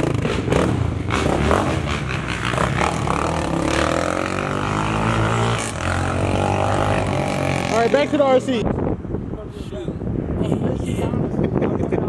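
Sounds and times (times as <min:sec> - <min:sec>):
vehicle engine revving: 0:00.0 - 0:08.6.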